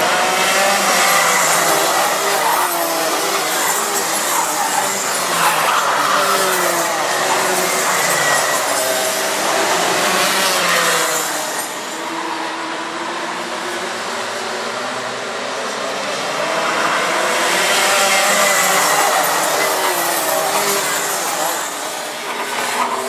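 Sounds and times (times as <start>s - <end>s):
kart engines revving: 0.0s - 23.0s.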